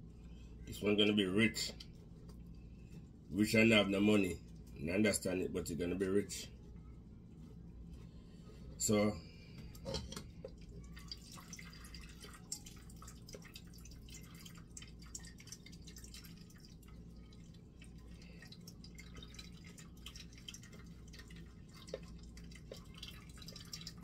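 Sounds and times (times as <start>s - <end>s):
juice dripping and trickling: 0.0s - 8.2s, 8.8s - 24.0s.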